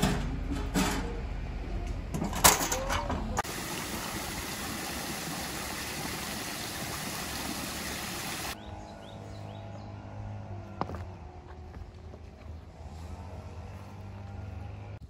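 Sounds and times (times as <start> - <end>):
water pouring and splashing: 3.4 - 8.6.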